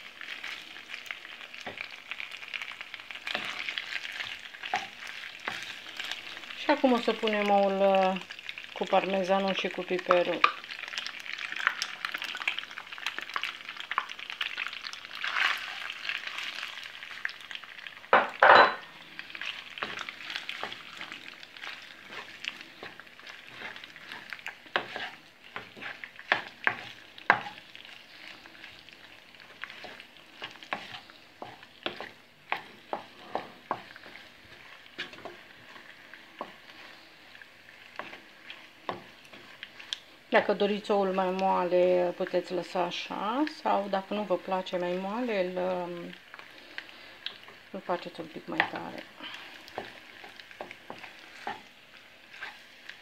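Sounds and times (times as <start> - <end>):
hot pan sizzling: 0.0 - 53.0
wooden spoon stirring pasta in pan: 0.0 - 53.0
spoon tapping on pan: 18.1 - 18.9.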